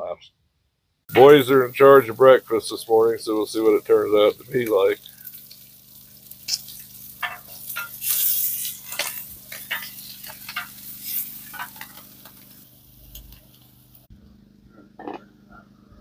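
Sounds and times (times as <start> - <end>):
sausages sizzling on a griddle: 1.1 - 14.1
metal spatulas scraping griddle: 7.2 - 12.1.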